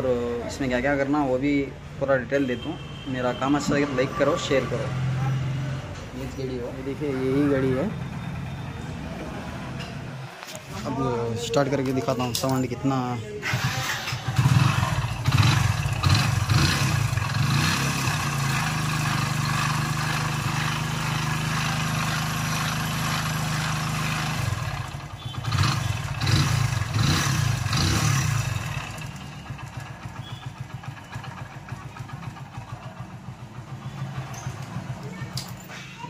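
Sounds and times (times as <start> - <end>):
motorcycle engine revving and idling: 3.6 - 12.7, 13.4 - 36.0.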